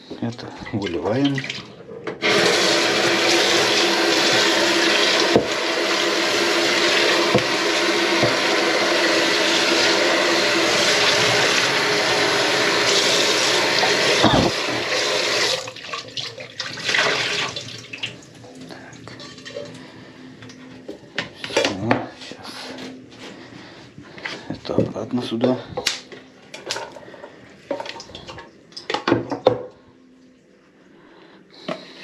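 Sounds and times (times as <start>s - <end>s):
tap water running into pot: 2.2s - 18.2s.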